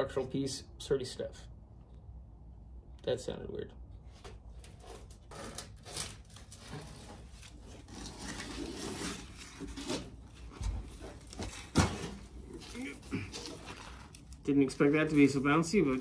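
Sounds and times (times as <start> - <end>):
rubber weatherstripping scraping: 4.1 - 16.0.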